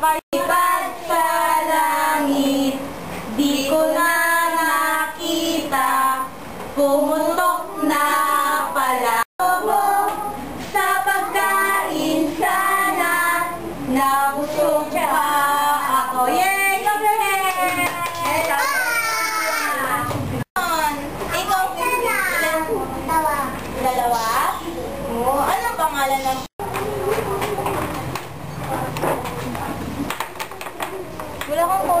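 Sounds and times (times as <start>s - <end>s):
children singing: 0.4s - 16.2s.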